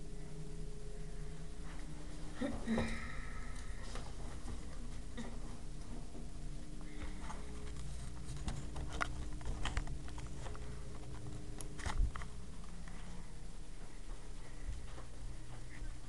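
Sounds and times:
low steady hum: 0:00.0 - 0:16.0.

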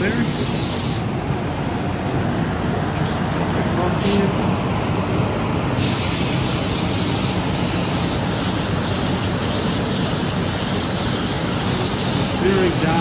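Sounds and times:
paint spray gun hissing: 0:00.0 - 0:01.1, 0:05.8 - 0:13.0
fans droning: 0:00.0 - 0:13.0.

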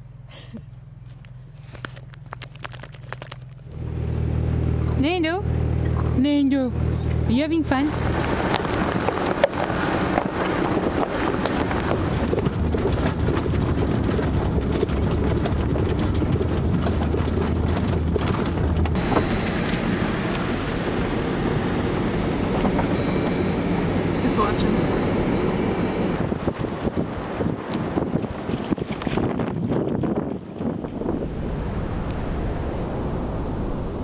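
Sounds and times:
engine and road rumble: 0:00.0 - 0:34.0
wind noise: 0:06.8 - 0:34.0.

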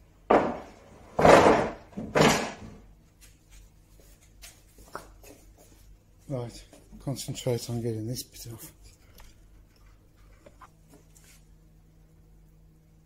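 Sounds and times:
heavy wooden knocks: 0:00.3 - 0:02.8.

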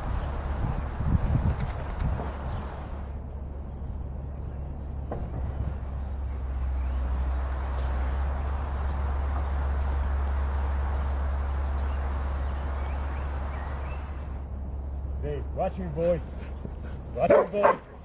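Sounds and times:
low rumble and hiss: 0:00.0 - 0:18.0.

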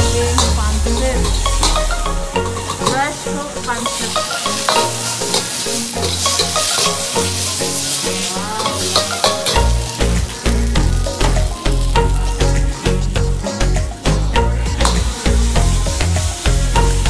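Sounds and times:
music: 0:00.0 - 0:17.0
noodles sizzling in a wok: 0:00.0 - 0:17.0
ladle scraping and clanking: 0:00.3 - 0:10.4.

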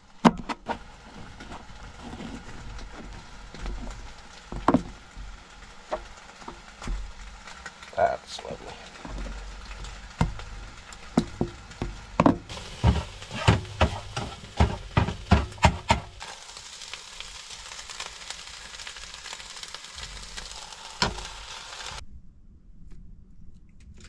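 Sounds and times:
food frying and sizzling: 0:00.0 - 0:22.0
sharp knocks: 0:11.2 - 0:16.2.

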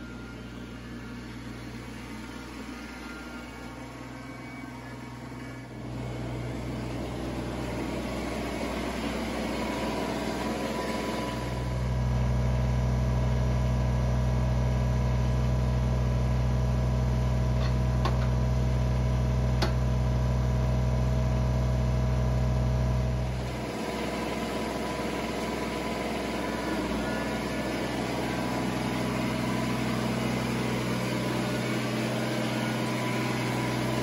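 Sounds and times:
tractor diesel engine idling: 0:00.0 - 0:34.0.

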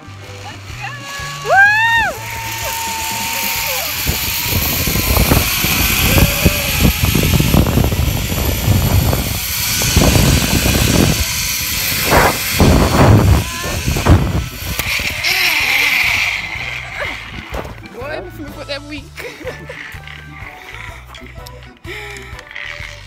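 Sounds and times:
wind buffeting microphone: 0:02.8 - 0:17.8.

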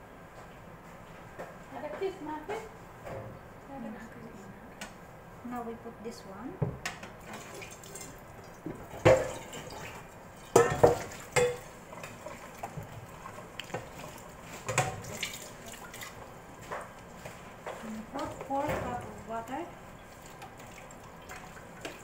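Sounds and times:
wire rack clanking on metal pan: 0:10.5 - 0:11.6.

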